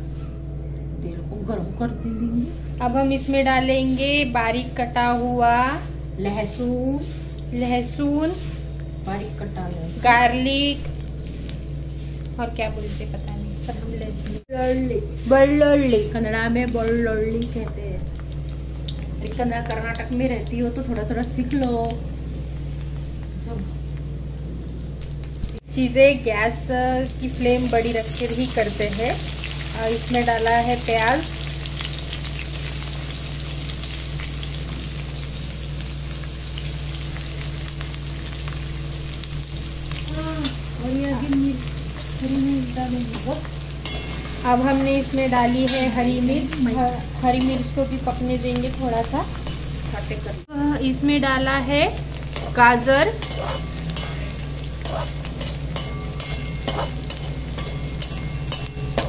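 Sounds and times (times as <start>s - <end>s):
low hum: 0.0s - 59.0s
onions sizzling in hot oil: 2.8s - 59.0s
metal spoon scraping pan: 43.8s - 46.4s, 52.3s - 59.0s.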